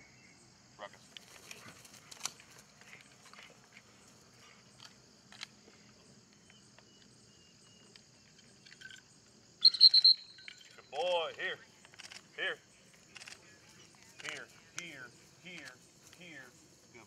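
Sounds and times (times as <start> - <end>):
faint high chirps: 6.0 - 11.1.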